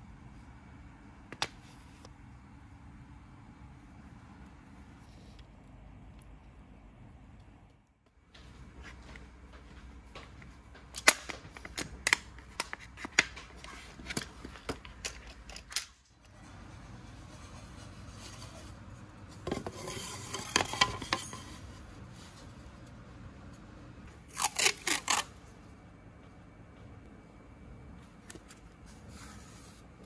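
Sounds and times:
masking tape ripping off roll: 0:24.3 - 0:25.3.

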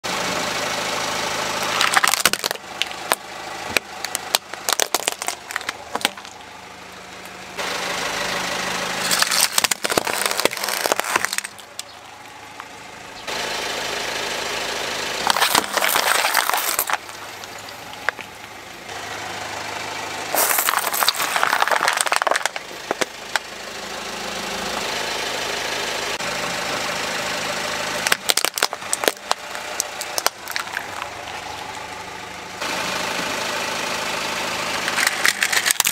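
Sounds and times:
car engine idling: 0:00.0 - 0:35.9
plastic toys cracking under tyre: 0:01.7 - 0:03.2, 0:03.8 - 0:06.4, 0:09.0 - 0:12.0, 0:15.2 - 0:18.3, 0:20.4 - 0:23.5, 0:28.0 - 0:31.8, 0:34.9 - 0:35.9.

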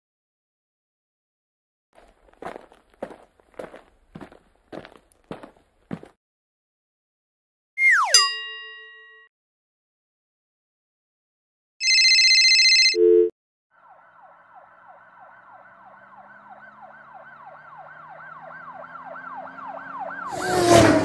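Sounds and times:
police siren wailing: 0:13.7 - 0:21.0.

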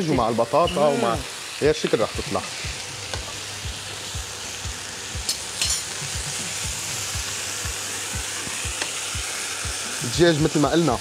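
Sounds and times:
chicken sizzling in frying pan: 0:00.0 - 0:11.0.

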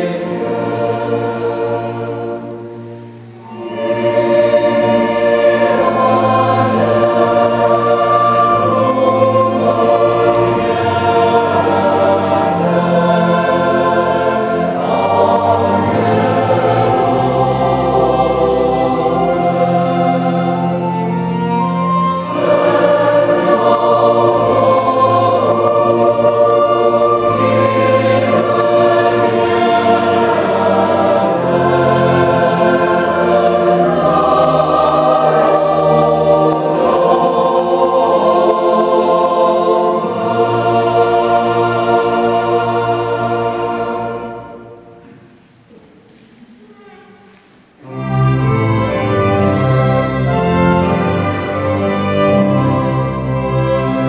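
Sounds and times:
mixed choir singing: 0:00.0 - 0:46.5, 0:47.3 - 0:54.0
string ensemble: 0:00.0 - 0:54.0.

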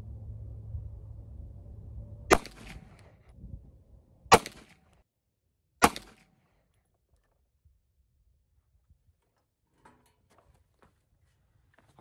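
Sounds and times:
pistol gunshots with echo: 0:02.3 - 0:03.0, 0:04.3 - 0:04.9, 0:05.8 - 0:06.3.

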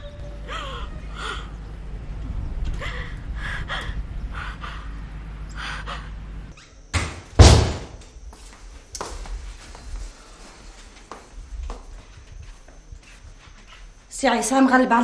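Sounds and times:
woman sobbing: 0:00.0 - 0:01.6
low rumble: 0:00.0 - 0:06.5
door slamming: 0:06.9 - 0:08.0.

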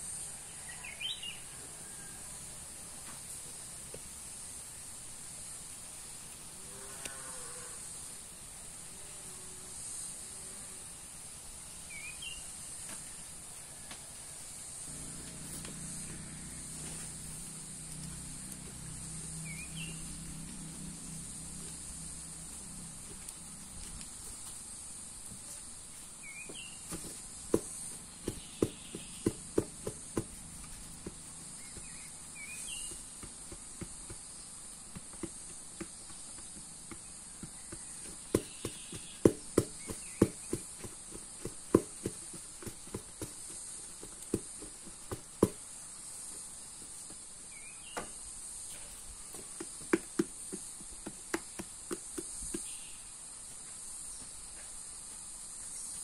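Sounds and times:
insects droning: 0:00.0 - 0:56.0.

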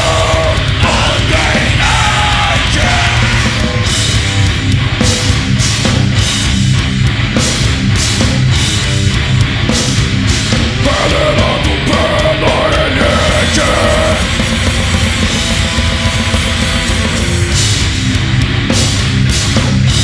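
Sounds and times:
harsh shouted vocals: 0:00.0 - 0:03.9, 0:10.7 - 0:14.9
heavy metal band playing: 0:00.0 - 0:20.0.

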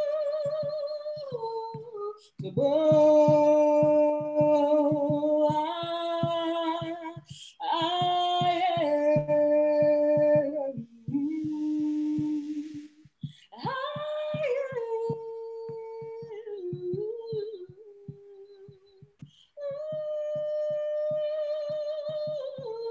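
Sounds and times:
woman singing unaccompanied: 0:00.0 - 0:22.9
singer breathing: 0:12.8 - 0:13.6, 0:19.2 - 0:19.6.

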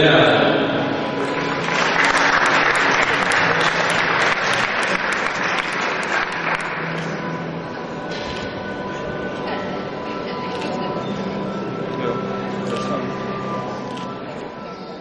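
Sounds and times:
audience applauding: 0:01.2 - 0:07.2.

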